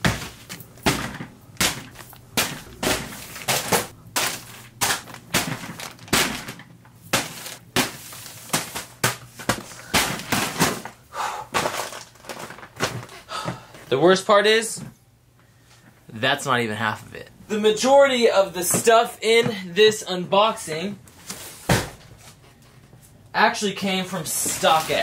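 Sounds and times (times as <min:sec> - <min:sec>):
packages landing with sharp slaps: 0:00.0 - 0:13.2, 0:21.3 - 0:22.1, 0:24.3 - 0:25.0.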